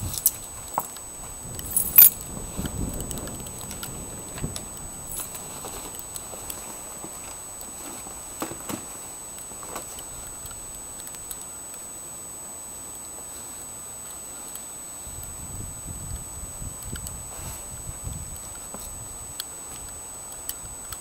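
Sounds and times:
keys jangling: 0.0 - 0.9, 1.6 - 2.2, 5.1 - 5.4.

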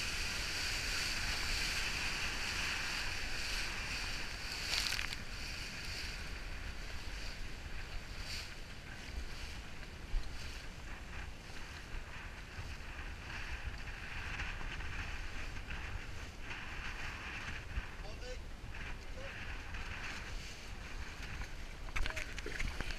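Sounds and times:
water hissing and splashing: 0.0 - 7.2
wind buffeting microphone: 0.0 - 22.9.

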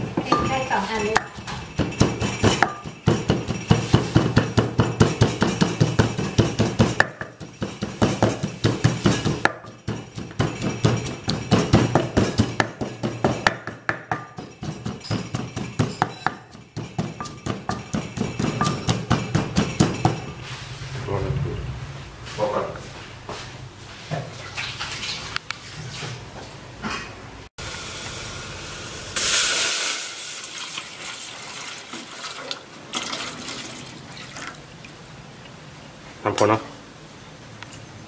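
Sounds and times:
pestle pounding in a mortar: 0.1 - 20.3.

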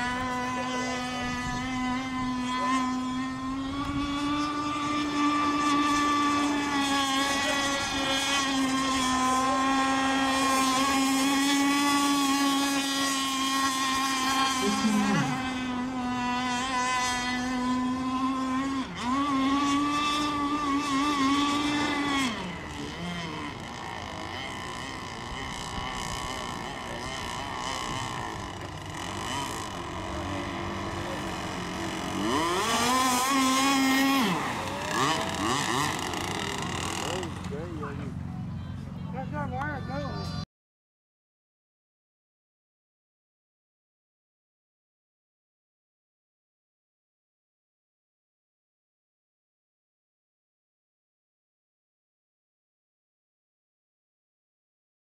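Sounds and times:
model boat motor whining: 0.0 - 40.4.

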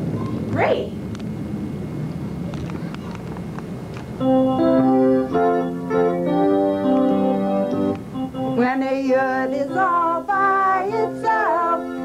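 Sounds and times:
low hiss and hum: 0.0 - 12.0
keyboard chords: 4.2 - 12.0.

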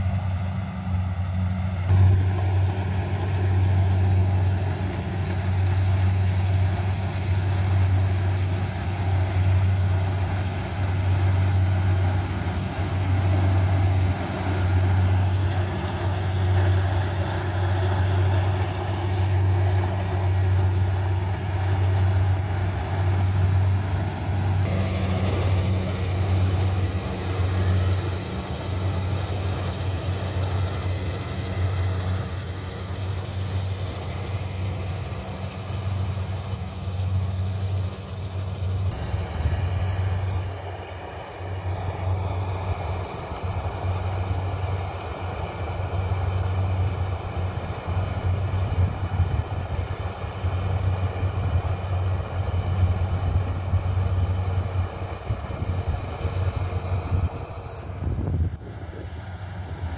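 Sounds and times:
combine harvester droning: 0.0 - 59.9.

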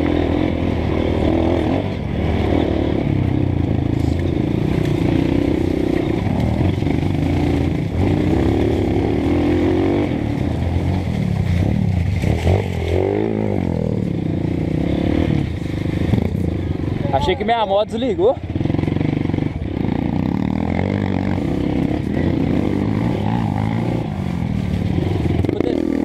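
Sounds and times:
motorcycle engine revving: 0.0 - 26.0.

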